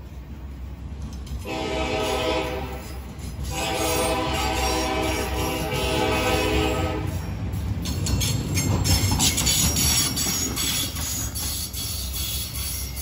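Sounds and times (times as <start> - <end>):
train cars rumbling: 0.0 - 13.0
train air horn chord: 1.4 - 2.9, 3.5 - 7.2
wheels clacking over rail joints: 7.0 - 13.0.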